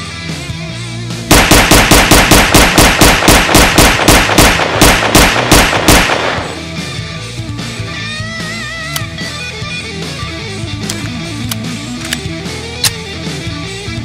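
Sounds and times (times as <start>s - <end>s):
rapid pistol shots: 1.3s - 6.8s.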